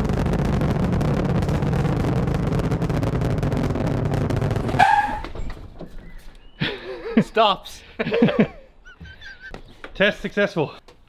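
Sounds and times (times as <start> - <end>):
rocket launch roar: 0.0 - 5.8.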